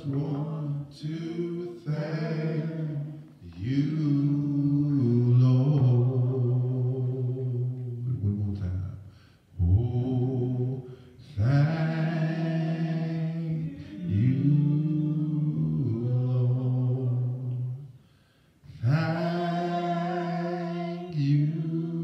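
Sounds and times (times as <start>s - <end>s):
man singing into a microphone: 0.0s - 2.0s.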